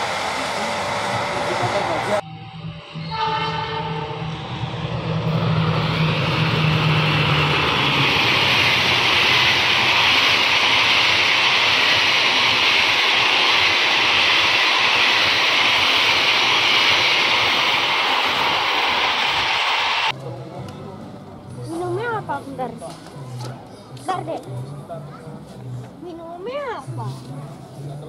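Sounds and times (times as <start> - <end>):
train wheels rushing on rails: 0.0 - 2.2, 3.4 - 20.1
diesel locomotive engine drone: 0.0 - 26.0.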